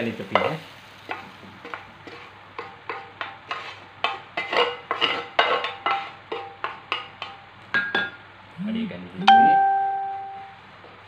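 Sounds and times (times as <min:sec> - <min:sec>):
pan ringing: 0:09.3 - 0:10.6.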